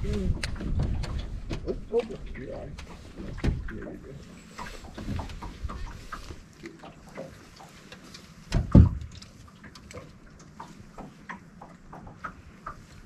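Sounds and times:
light clicks and ticks: 0:09.0 - 0:13.0.

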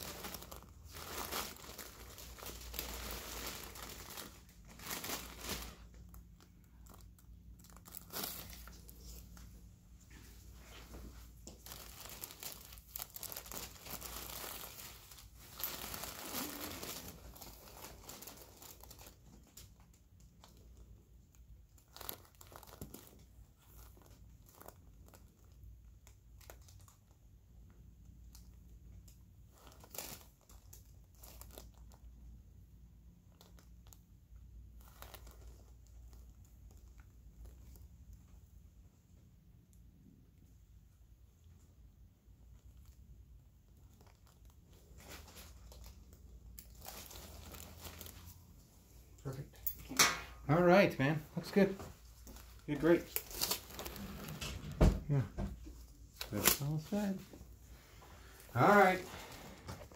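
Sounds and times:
paper crinkling and rustling: 0:00.0 - 0:09.5, 0:10.1 - 0:20.6, 0:21.8 - 0:27.1, 0:34.8 - 0:37.8, 0:43.7 - 0:48.4, 0:51.4 - 0:59.9.

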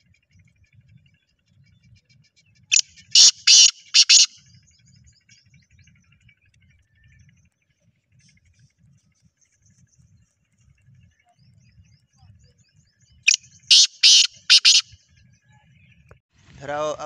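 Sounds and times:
francolin grating call: 0:02.7 - 0:04.4, 0:13.3 - 0:15.0.

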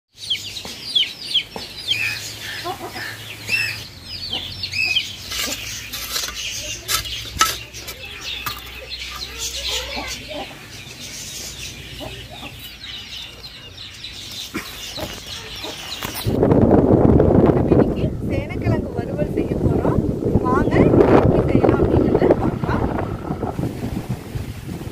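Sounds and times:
birds chirping: 0:00.1 - 0:16.6, 0:17.5 - 0:24.9
hoe chopping dry soil: 0:05.2 - 0:08.8
wind buffeting microphone: 0:14.9 - 0:24.9.

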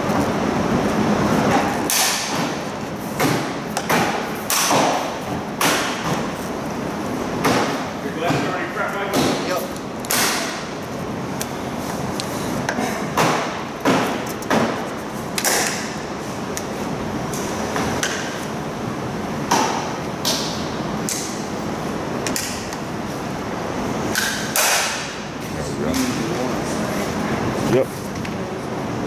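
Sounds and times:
steady background hiss: 0:00.0 - 0:29.0.

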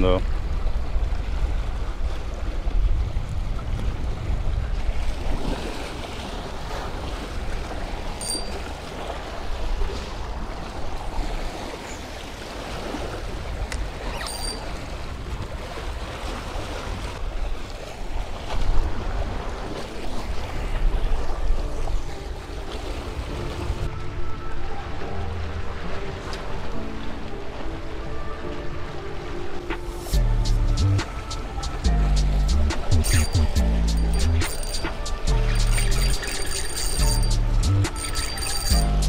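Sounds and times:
waves washing against rocks: 0:00.0 - 0:14.0
wind rumbling on microphone: 0:00.2 - 0:08.2
short high clicks: 0:33.0 - 0:38.9.

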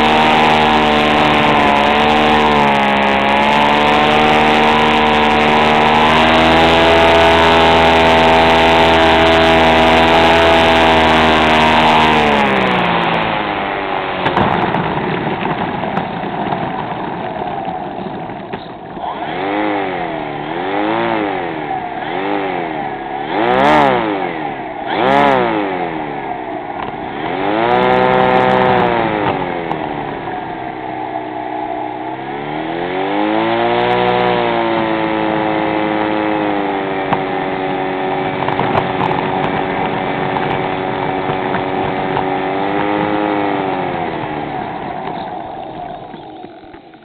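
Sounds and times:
model airplane engine revving: 0:00.0 - 0:47.0.

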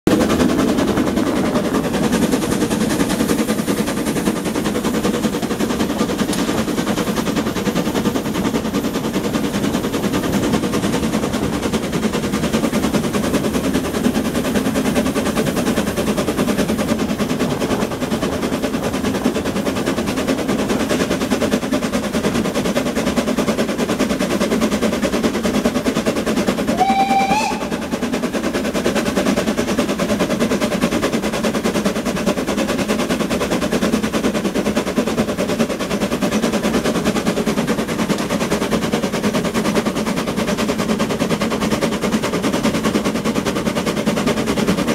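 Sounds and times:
steam locomotive exhaust chatter: 0:00.1 - 0:44.9
locomotive whistle blast: 0:26.7 - 0:27.9.

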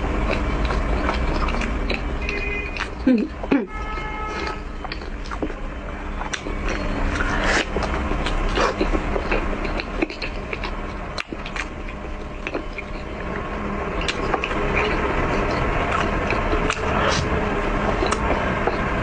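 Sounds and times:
background hiss and hum: 0:00.0 - 0:19.0
close-up chewing: 0:00.0 - 0:19.0
wet mouth clicks and smacks: 0:06.2 - 0:13.4.

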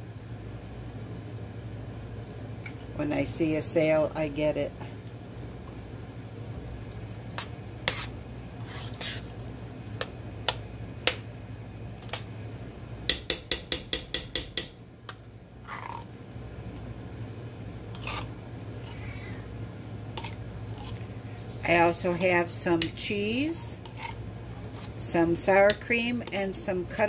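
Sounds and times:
low steady hum: 0:00.0 - 0:27.0
spoon scraping tin can: 0:07.4 - 0:09.3, 0:17.9 - 0:18.3, 0:23.5 - 0:25.1.

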